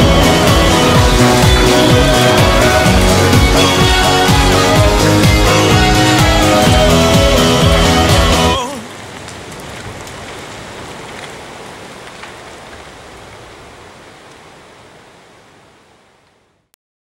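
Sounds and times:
rushing hiss: 0.0s - 8.9s.

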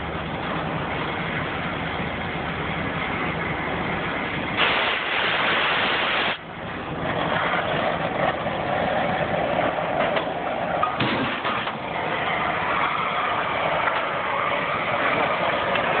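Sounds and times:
cutting torch hissing: 4.6s - 6.4s.

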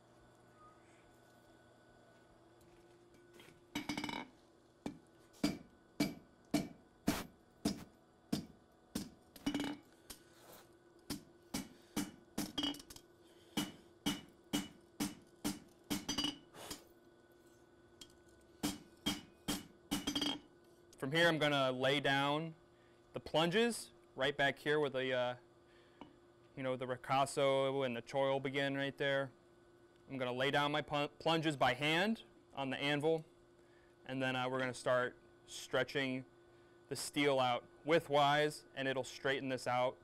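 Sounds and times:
hammer striking blade on anvil: 5.4s - 7.8s, 13.6s - 16.8s, 18.6s - 20.4s
anvil ringing: 13.6s - 16.5s.

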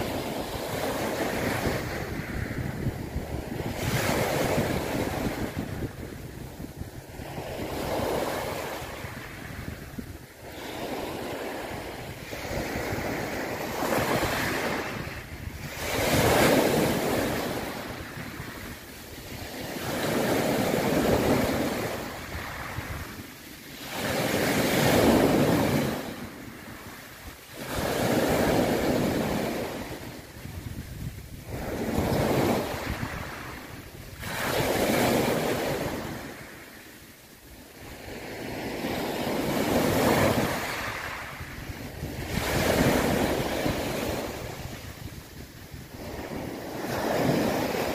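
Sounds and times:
sea waves rushing: 0.0s - 47.9s.

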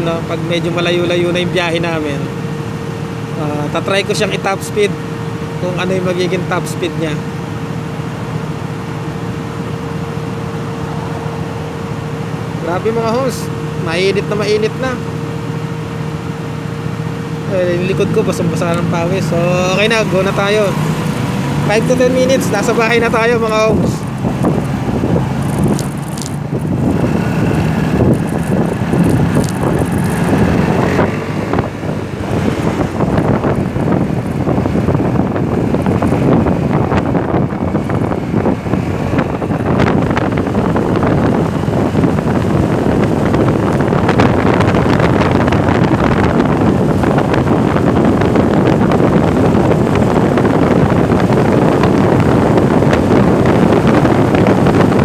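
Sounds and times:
wind rushing over microphone: 0.0s - 55.0s
scooter engine running: 16.8s - 55.0s.

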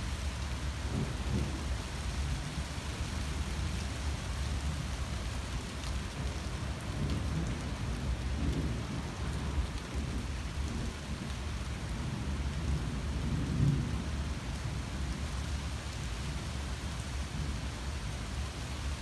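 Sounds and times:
rain on leaves and pavement: 0.0s - 19.0s
low rumble of thunder: 0.6s - 2.9s, 6.1s - 15.5s.

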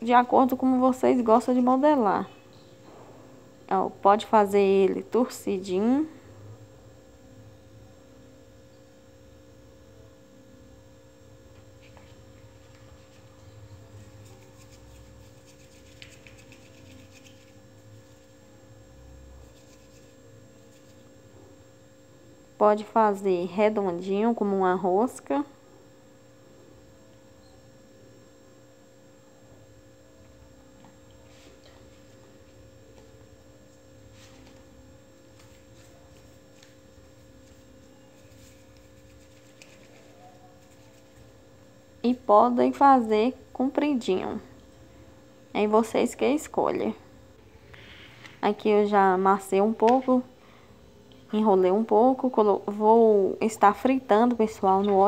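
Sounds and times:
steady low hum: 0.0s - 55.0s
hands rubbing dough: 11.5s - 18.5s, 19.4s - 21.2s, 33.6s - 41.4s.

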